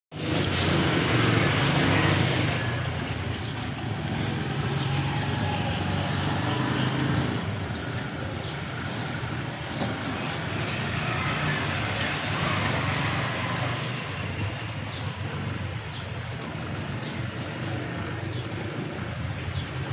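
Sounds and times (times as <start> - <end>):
vehicle engine humming: 0.1 - 19.9.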